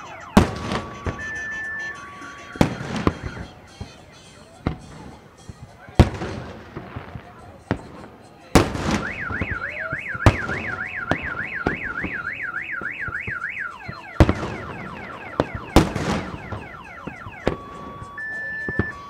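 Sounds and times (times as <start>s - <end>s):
car alarm siren warbling: 0.0s - 3.6s, 8.9s - 19.0s
fireworks bangs: 0.0s - 19.0s.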